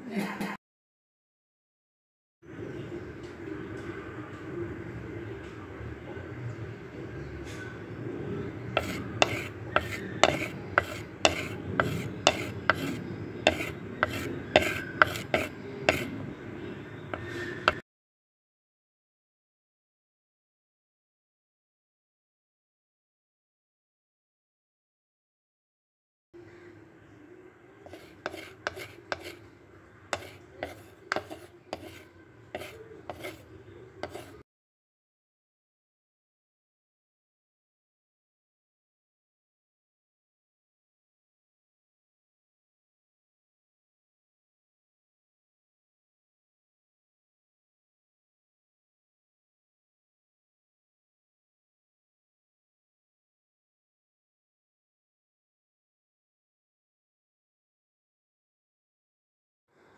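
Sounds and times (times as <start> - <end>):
wooden spatula scraping clay pot: 8.7 - 16.2, 17.1 - 17.8, 27.8 - 29.5, 30.1 - 34.4.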